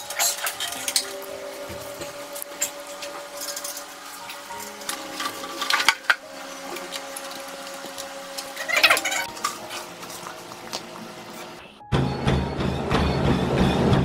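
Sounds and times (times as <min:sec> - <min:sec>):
metal cover clinking and rattling: 0:00.0 - 0:01.2.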